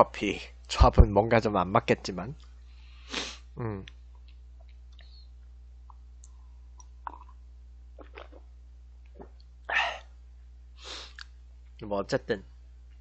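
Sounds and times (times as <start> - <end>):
low steady hum: 0.0 - 13.0
person sipping from a mug: 7.0 - 7.4, 8.0 - 8.5.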